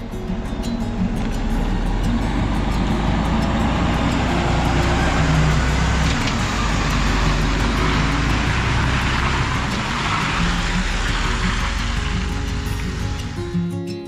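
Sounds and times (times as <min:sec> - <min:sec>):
truck diesel engine rumble: 0:00.0 - 0:13.6
tyre hiss on wet asphalt: 0:05.0 - 0:13.5.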